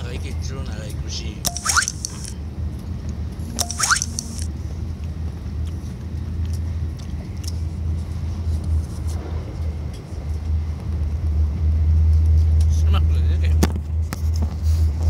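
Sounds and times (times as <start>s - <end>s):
train cabin low rumble: 4.5s - 14.1s.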